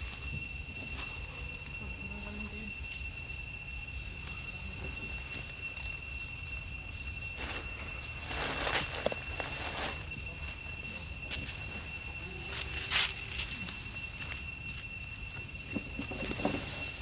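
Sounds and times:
high-pitched insect drone: 0.0 - 17.0
rustling: 7.4 - 10.4.

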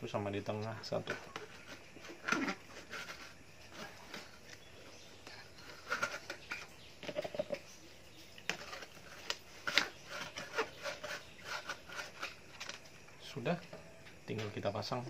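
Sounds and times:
plastic bottle crackling: 1.0 - 7.6.

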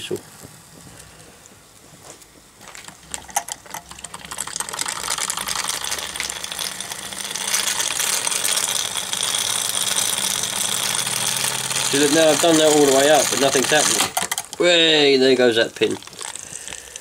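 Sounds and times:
steam hissing: 3.0 - 17.0
toy steam engine ticking and clatter: 3.1 - 14.6.

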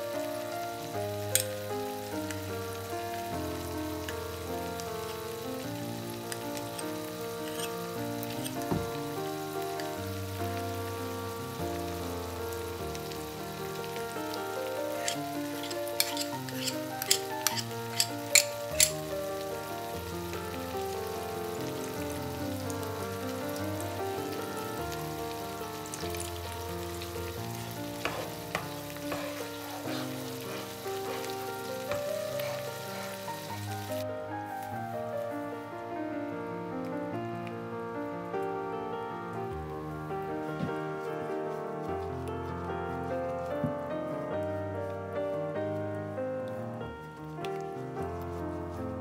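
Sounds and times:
sauce sizzling in a frying pan: 0.0 - 34.9
background music with melody: 0.0 - 49.0
spoon stirring in a pan: 6.3 - 10.0, 13.9 - 19.8, 25.4 - 34.0.

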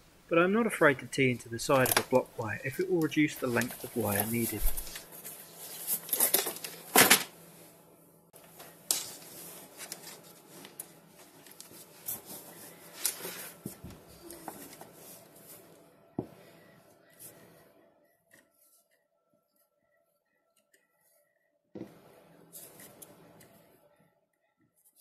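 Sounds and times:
wire rustling and scraping: 3.4 - 6.9.

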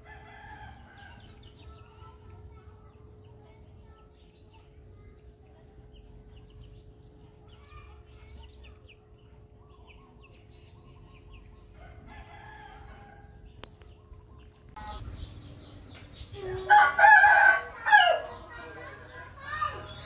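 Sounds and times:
distant rooster crow: 11.8 - 13.3, 16.6 - 19.0
faint bird chirps: 13.1 - 16.8
rooster crowing: 16.7 - 18.4.

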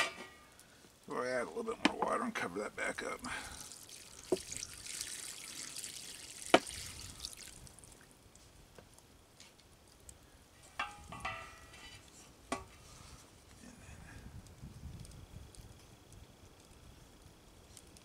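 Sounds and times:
water pouring into a pot: 3.0 - 8.2.

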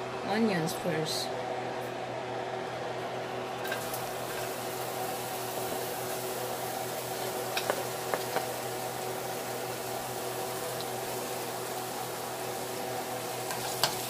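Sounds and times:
onions sizzling in oil: 3.6 - 14.0.

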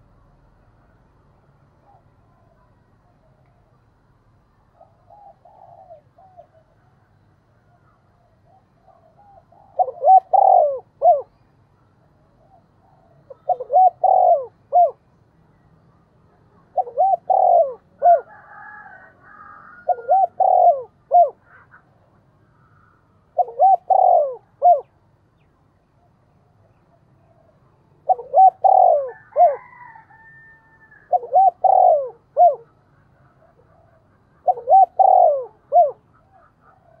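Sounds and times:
dove cooing: 4.7 - 11.4, 12.4 - 15.1, 16.5 - 25.0, 26.8 - 37.0.

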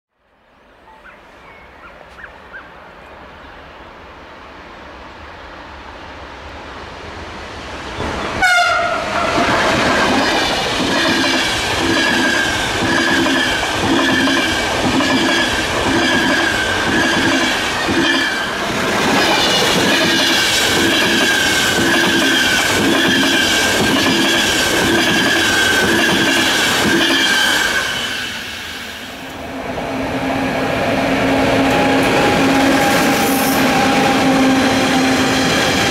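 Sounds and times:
electric locomotive hum: 0.6 - 35.9
locomotive rushing past whine: 0.9 - 35.9
clickety-clack of wheels on rails: 8.0 - 28.3, 29.2 - 35.9.

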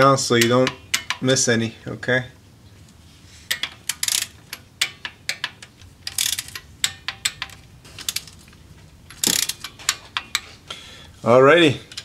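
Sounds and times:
torque wrench ratcheting clicks: 0.4 - 1.2, 3.5 - 8.4, 9.1 - 10.5.

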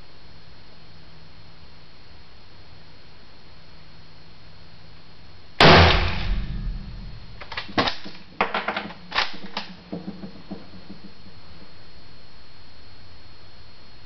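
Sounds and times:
rifle shot ringing in room: 5.6 - 8.6.

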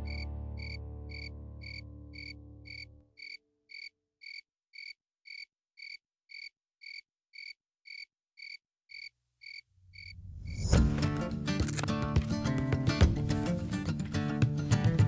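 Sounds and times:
cricket chirping: 0.1 - 10.7.

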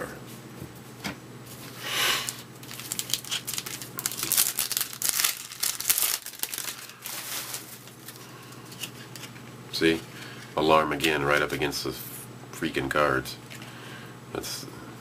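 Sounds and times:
wrapper tearing and crinkling: 2.2 - 9.4.

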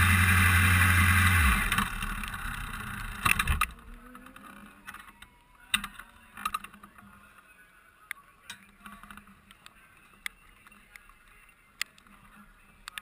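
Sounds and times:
race car engine cutting out: 0.0 - 4.8
sharp clicks and knocks: 1.4 - 5.1.

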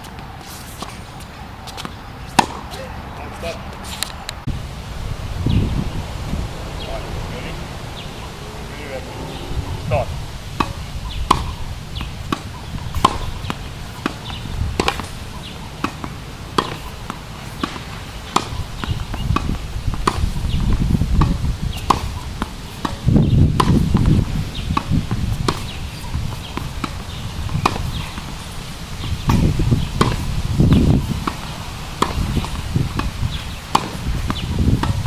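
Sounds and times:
racket striking tennis ball: 0.0 - 2.9, 8.0 - 35.0
low rumble: 4.5 - 12.2
ball bouncing on hard court: 10.6 - 28.4.

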